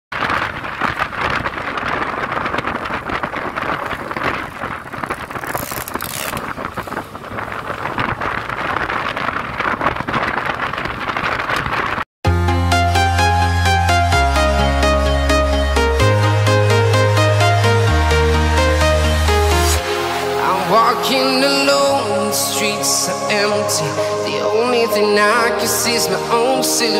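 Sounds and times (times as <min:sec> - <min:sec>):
wind buffeting microphone: 0:00.1 - 0:12.1
scooter engine and road noise: 0:00.4 - 0:12.0
electronic dance music: 0:12.3 - 0:26.9.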